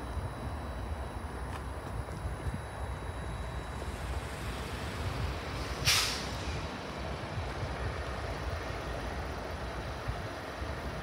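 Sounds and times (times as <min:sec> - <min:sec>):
distant locomotive rumble: 0:00.7 - 0:11.0
sharp air release hiss: 0:05.5 - 0:06.7.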